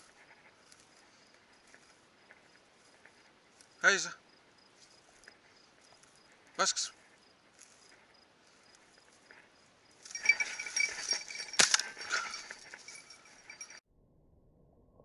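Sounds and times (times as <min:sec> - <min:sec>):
dog bell jingling: 0:00.0 - 0:03.9, 0:07.0 - 0:13.8.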